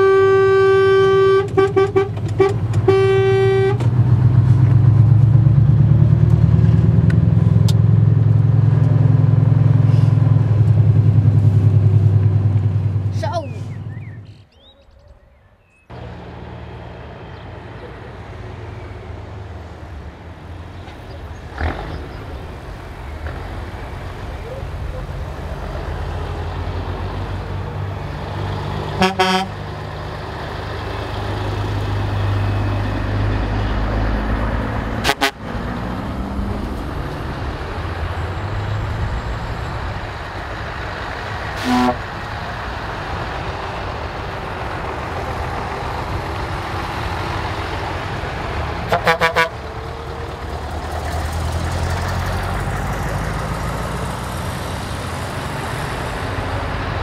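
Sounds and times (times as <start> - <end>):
truck horn blasts: 0.0 - 4.0, 28.9 - 29.7, 35.0 - 35.7, 41.6 - 42.1, 48.8 - 49.7
heavy trucks driving past: 0.0 - 14.6, 15.9 - 57.0.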